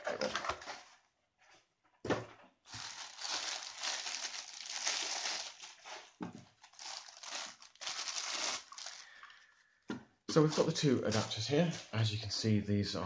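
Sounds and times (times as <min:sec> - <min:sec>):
plastic bag crinkling: 0:02.7 - 0:09.3.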